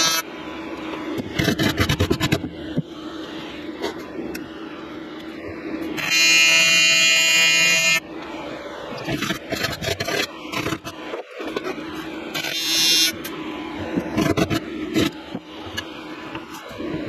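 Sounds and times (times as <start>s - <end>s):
welding arc buzzing: 0.0s - 0.3s, 6.0s - 8.0s.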